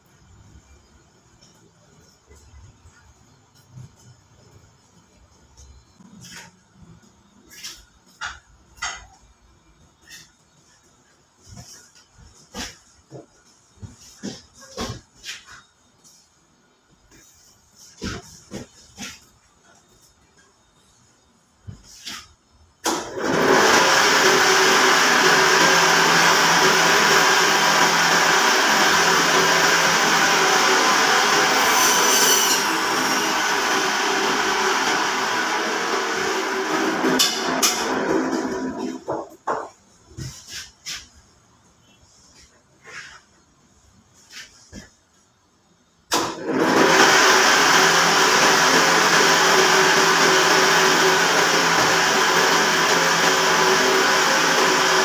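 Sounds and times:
band saw running: 23.1s - 39.1s, 46.2s - 55.0s.

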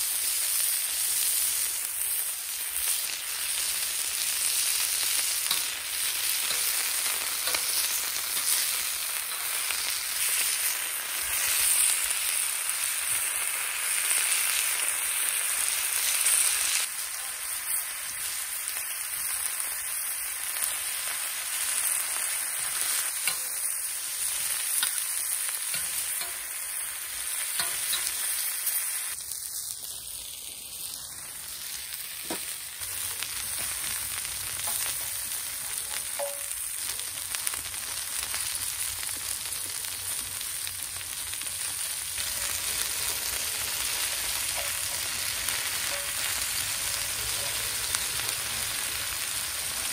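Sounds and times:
meat sizzling on a griddle: 0.0s - 49.9s
metal tongs turning meat: 4.3s - 11.6s, 22.0s - 28.4s, 42.2s - 48.0s.

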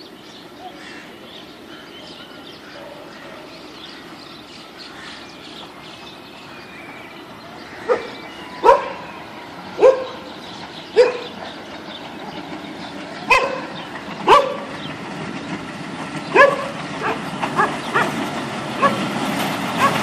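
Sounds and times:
railway machine rumble: 0.0s - 20.0s
dog barking: 7.9s - 9.0s, 9.8s - 10.2s, 11.0s - 11.3s, 13.3s - 13.7s, 14.3s - 14.7s, 16.4s - 18.1s.

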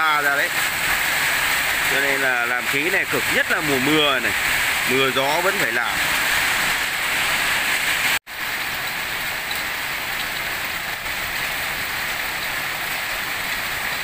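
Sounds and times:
steady rain falling: 0.0s - 14.0s.

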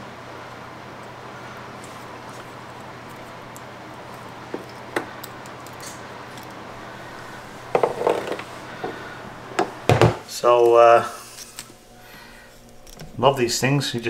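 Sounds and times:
faint steady hum: 0.0s - 14.0s
clicks and rustles of wire handling: 1.8s - 6.6s.

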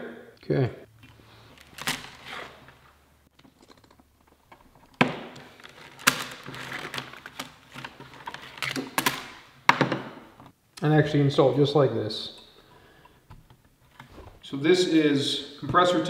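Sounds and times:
plastic tubing rustling and clicking: 1.0s - 9.4s.

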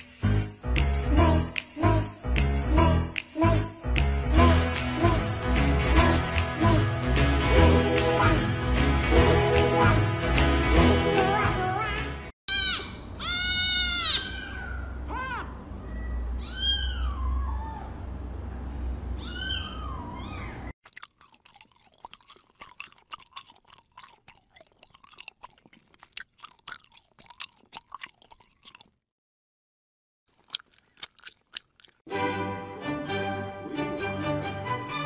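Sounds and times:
kitten meowing: 12.5s - 17.9s, 19.2s - 20.6s
kitten suckling wet clicks: 20.8s - 28.9s, 30.3s - 32.0s.

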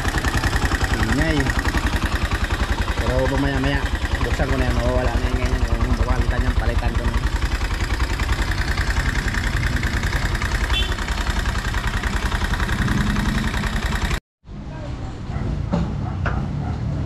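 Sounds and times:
motorcycle engine idling: 0.0s - 14.2s.

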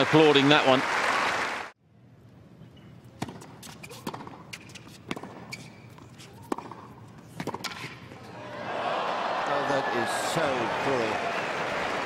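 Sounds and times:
ball bouncing on court: 3.2s - 8.0s
tennis ball struck by rackets: 3.2s - 8.0s.

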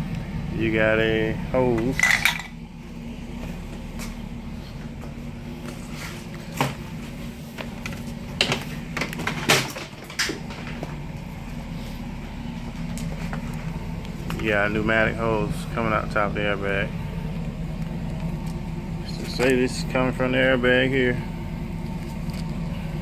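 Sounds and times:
steady low hum: 0.0s - 23.0s
parts clicking and clattering: 1.7s - 2.6s, 7.5s - 11.0s, 21.8s - 22.7s.

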